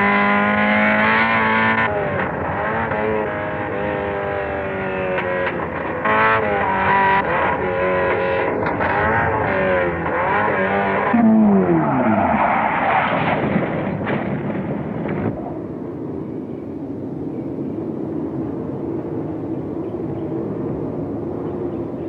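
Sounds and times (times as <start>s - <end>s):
racing car engine: 0.0s - 15.7s
car scrabbling in dirt: 8.6s - 15.4s.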